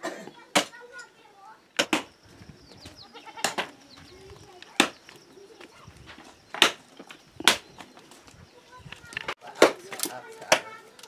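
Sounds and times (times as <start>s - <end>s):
blade striking wood: 1.8s - 2.1s, 4.6s - 5.1s, 6.5s - 7.9s, 9.2s - 10.7s.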